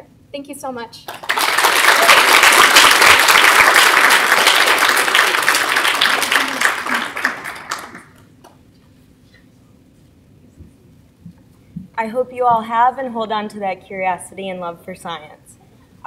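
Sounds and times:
audience applauding: 0:01.1 - 0:08.2.

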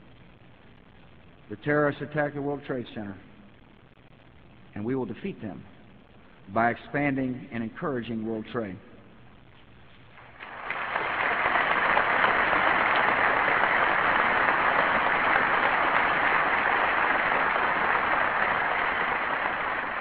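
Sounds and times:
audience applauding: 0:10.2 - 0:20.0.

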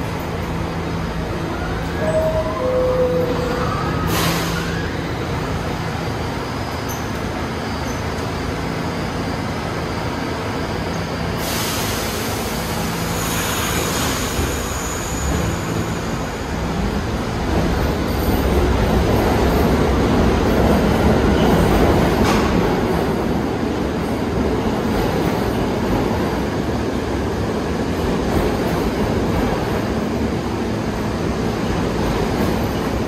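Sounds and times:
train doors closing: 0:00.0 - 0:08.4, 0:10.9 - 0:33.0
train pulling out: 0:00.0 - 0:23.6
air brakes hissing: 0:04.0 - 0:05.0, 0:11.4 - 0:16.3.

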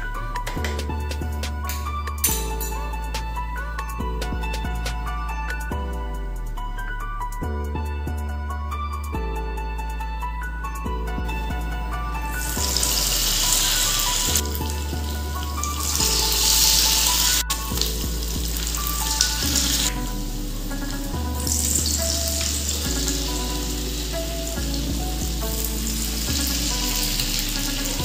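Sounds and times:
soft background music: 0:00.0 - 0:28.0
food deep-frying in oil: 0:12.4 - 0:28.0.

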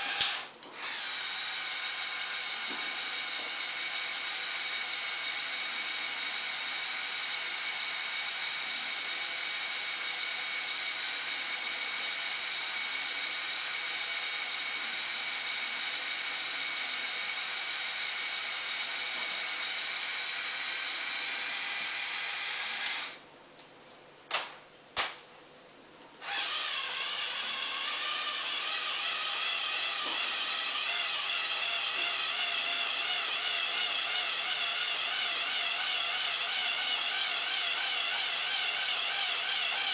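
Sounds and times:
small electric motors whining: 0:26.2 - 0:39.9.

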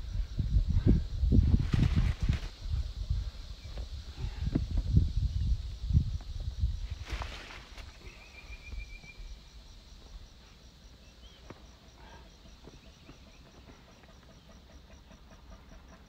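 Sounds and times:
insect chirring: 0:00.0 - 0:16.0
bird chirp: 0:07.9 - 0:09.6, 0:10.9 - 0:16.0.

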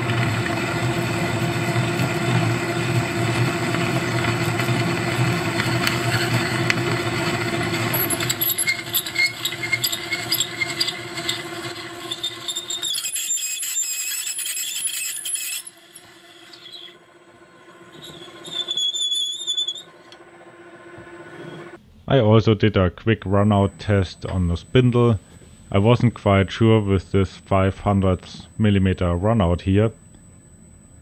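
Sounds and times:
low motor hum: 0:00.0 - 0:12.9, 0:15.6 - 0:21.8
drill bit squealing and chattering: 0:00.0 - 0:20.2.

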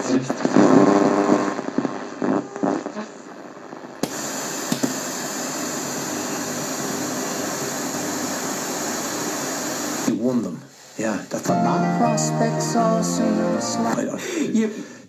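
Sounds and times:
radio broadcast: 0:00.0 - 0:04.0, 0:11.3 - 0:14.2
radio static hiss: 0:00.0 - 0:10.2.

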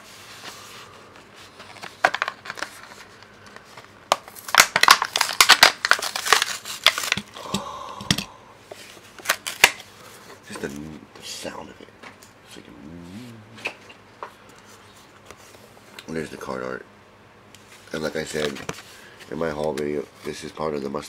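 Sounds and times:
cardboard ripping: 0:04.3 - 0:07.2.

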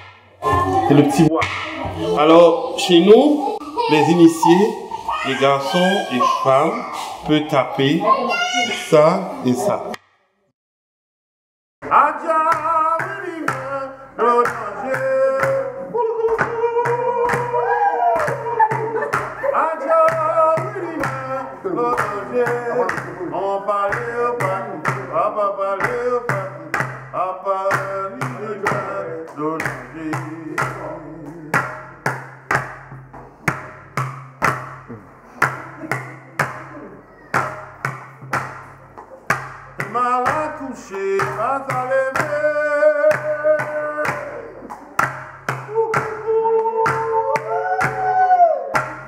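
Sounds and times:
voices singing a chant: 0:00.0 - 0:10.0, 0:11.8 - 0:31.9, 0:39.8 - 0:49.0.

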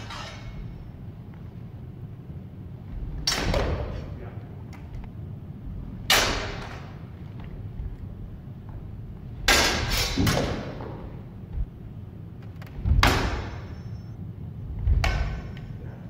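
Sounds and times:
sword blades clashing: 0:06.1 - 0:06.8, 0:09.4 - 0:10.5.

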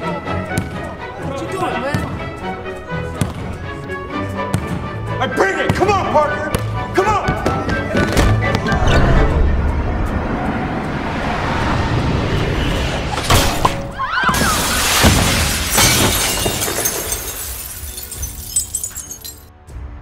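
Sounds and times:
music: 0:00.0 - 0:20.0
glass bursting apart: 0:14.3 - 0:19.5
glass shards tinkling: 0:15.3 - 0:19.5.

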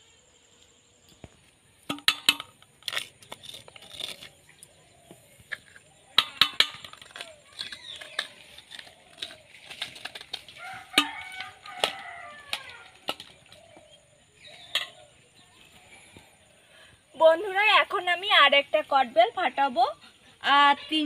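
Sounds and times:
metal spoon scraping and clinking: 0:05.5 - 0:09.4.

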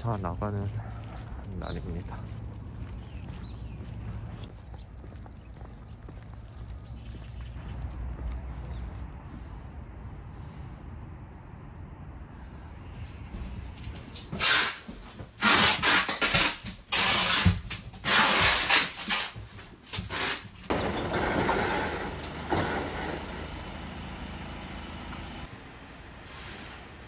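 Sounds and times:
truck engine humming: 0:01.2 - 0:10.0, 0:20.7 - 0:27.0.

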